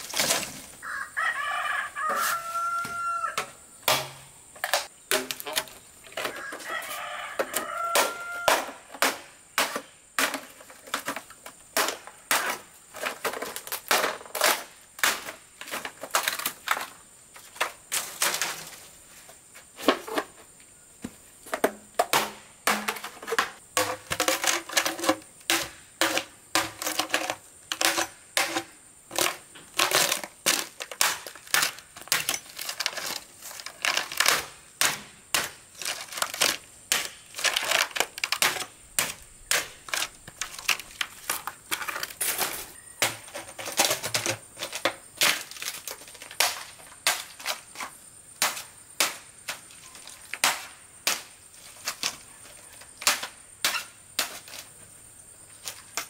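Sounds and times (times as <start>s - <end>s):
machete chopping bamboo: 3.4s - 5.7s, 7.8s - 10.5s, 21.6s - 24.6s, 25.5s - 33.2s, 33.8s - 40.9s, 50.4s - 51.3s.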